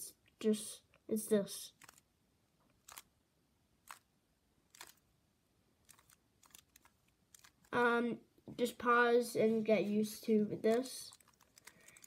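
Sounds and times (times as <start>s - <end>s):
puzzle cube turning clicks: 1.7s - 2.1s, 2.7s - 3.1s, 3.8s - 4.1s, 4.7s - 5.1s, 5.8s - 7.8s, 10.7s - 12.0s.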